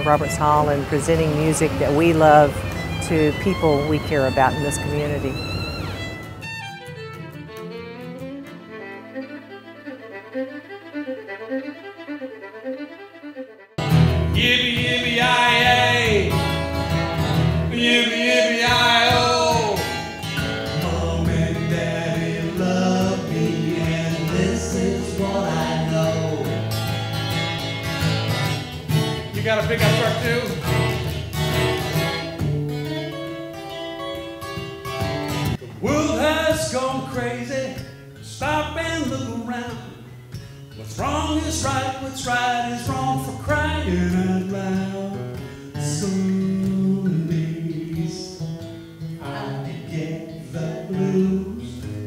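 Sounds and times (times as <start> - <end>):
acoustic guitar: 0.0 - 13.1, 13.8 - 52.0
quiet fiddle music: 0.0 - 18.0, 18.7 - 36.4
man singing: 14.3 - 16.6, 17.7 - 26.7, 35.8 - 40.0, 40.8 - 52.0.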